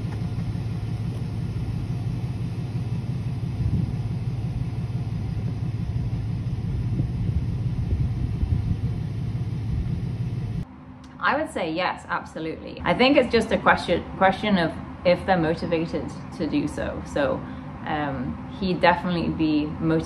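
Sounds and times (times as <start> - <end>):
wind buffeting microphone: 3.5 - 4.4, 5.0 - 10.6.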